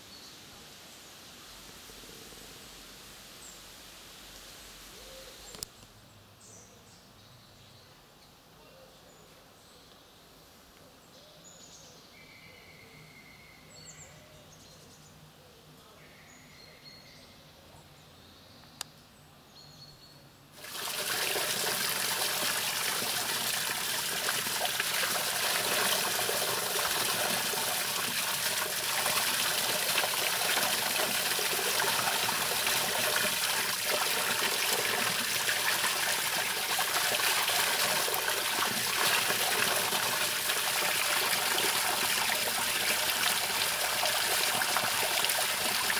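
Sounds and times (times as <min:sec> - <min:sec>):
faint bird chirps: 0:04.9 - 0:20.4
water pouring from a pipe: 0:20.6 - 0:45.9
water splashing onto a grate: 0:20.6 - 0:45.9.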